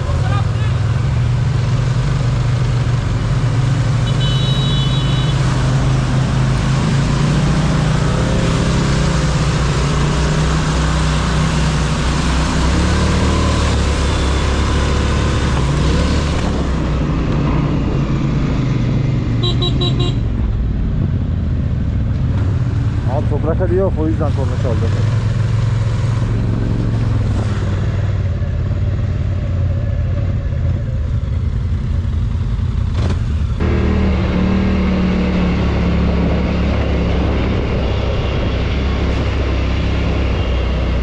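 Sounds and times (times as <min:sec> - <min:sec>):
vehicle horn beeps: 0:04.0 - 0:05.4, 0:19.4 - 0:20.3.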